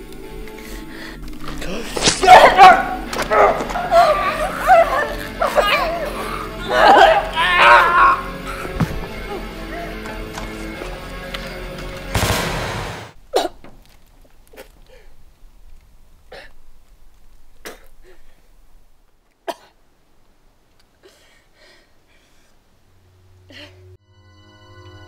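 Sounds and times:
background music: 0:00.0 - 0:13.2, 0:23.2 - 0:25.0
woman gasping and sobbing: 0:03.6 - 0:10.2
loud burst of noise: 0:12.2 - 0:13.2.

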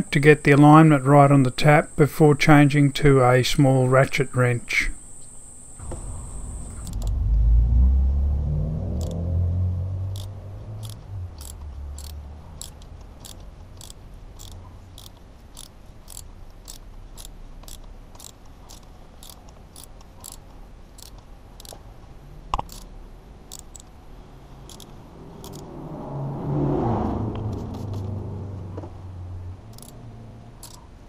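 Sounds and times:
ratchet wrench clicking: 0:08.9 - 0:09.2, 0:10.1 - 0:21.8, 0:22.6 - 0:22.9, 0:23.5 - 0:24.0, 0:24.6 - 0:25.7, 0:29.7 - 0:30.0, 0:30.6 - 0:30.9.

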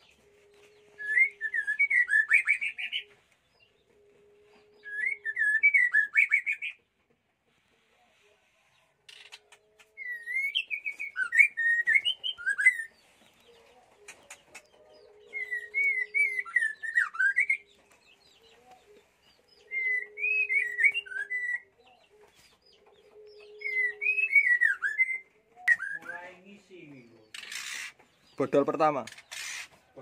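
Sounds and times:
bird singing warbling whistles: 0:01.0 - 0:03.0, 0:04.8 - 0:06.7, 0:10.0 - 0:12.9, 0:15.3 - 0:17.6, 0:19.7 - 0:21.6, 0:23.6 - 0:26.3
faint high bird chirps: 0:08.0 - 0:30.0.

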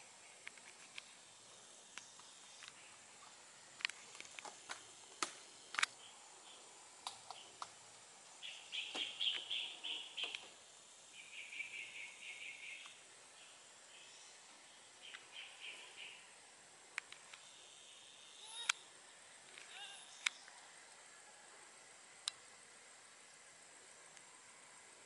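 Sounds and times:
rapid high chattering calls: 0:08.4 - 0:16.4.

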